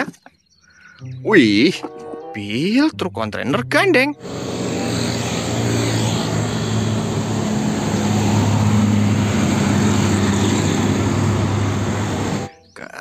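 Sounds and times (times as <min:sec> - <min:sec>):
diesel truck driving past: 0:04.2 - 0:12.5.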